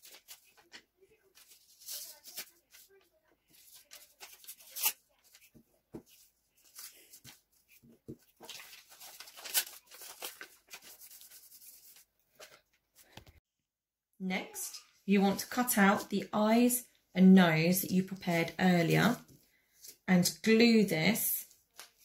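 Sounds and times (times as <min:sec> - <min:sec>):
paper rustling and crinkling: 0:00.0 - 0:13.4, 0:21.4 - 0:22.0.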